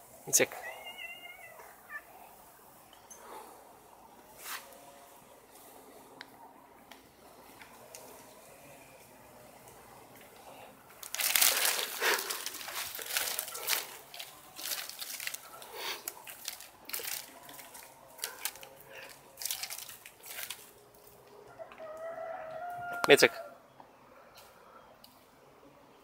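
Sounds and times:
branches and leaves rustling: 6.8 - 23.3.

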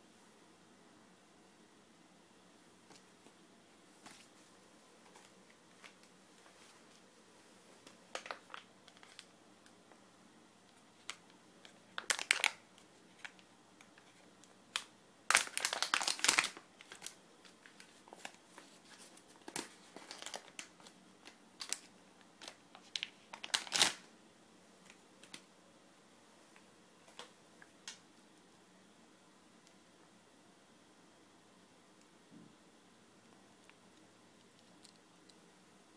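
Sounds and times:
packaging crinkling and rustling: 7.8 - 9.8, 10.7 - 24.1.

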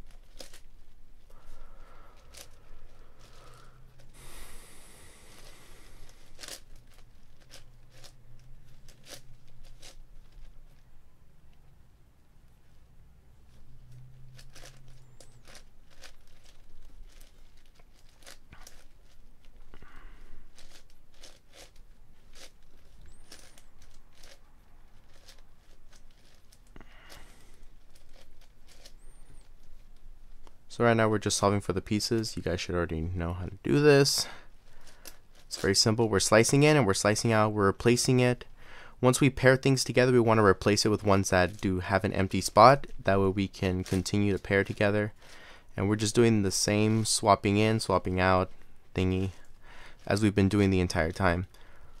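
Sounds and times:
puzzle cube layer scraping: 2.2 - 10.8, 13.5 - 19.6, 20.2 - 29.8, 39.0 - 51.6.

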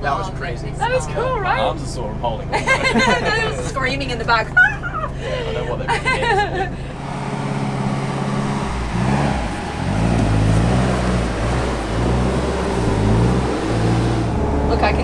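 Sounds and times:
vehicle engine revving: 6.7 - 15.0.

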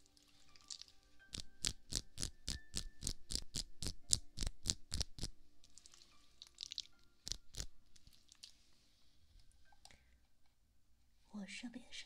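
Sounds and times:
gel squelching between hands: 0.6 - 8.6.

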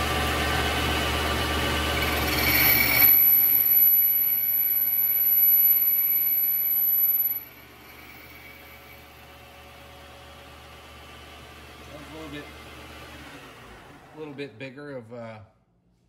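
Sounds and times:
lathe running: 0.1 - 9.5, 10.9 - 14.3
high-pitched cutting squeal: 1.9 - 9.2.

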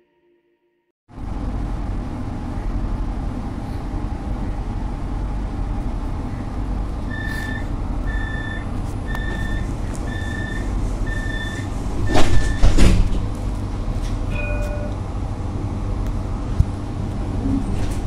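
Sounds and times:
tram hum: 1.1 - 18.0
short warning beeps: 7.1 - 12.7.

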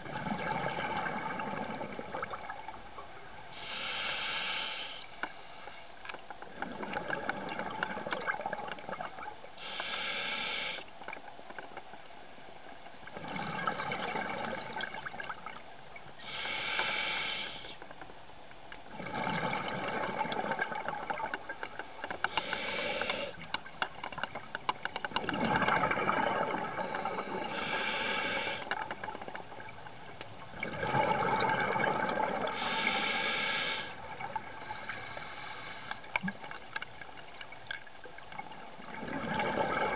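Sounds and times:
regulator hiss on inhale: 3.5 - 6.0, 9.6 - 10.9, 16.2 - 17.8, 21.8 - 23.4, 26.8 - 28.8, 32.5 - 36.2
bubbling rush on exhale: 25.2 - 28.7, 30.5 - 36.4.

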